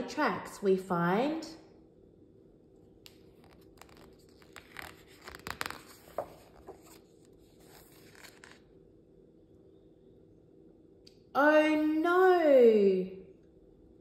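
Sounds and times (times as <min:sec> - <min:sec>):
paper page turning: 0:03.1 - 0:08.7.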